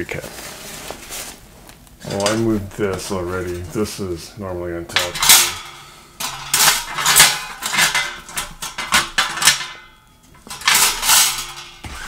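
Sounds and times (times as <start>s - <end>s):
nylon bag rustling and scraping: 0.0s - 3.9s.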